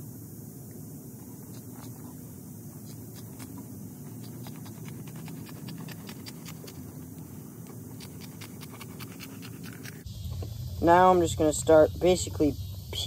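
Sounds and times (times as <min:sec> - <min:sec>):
scissors snipping scales: 0:02.8 - 0:06.8, 0:07.9 - 0:10.0.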